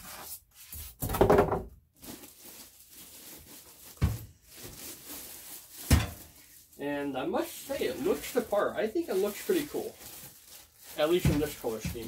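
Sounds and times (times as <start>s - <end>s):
plastic film rustling: 1.9s - 12.0s.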